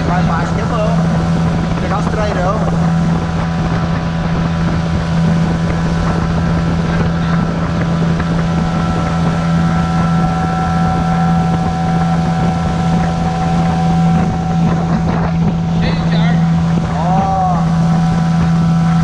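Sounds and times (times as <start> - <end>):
outboard motor drone: 0.0 - 19.0
water rushing along hull: 0.0 - 19.0
wind on microphone: 0.0 - 19.0.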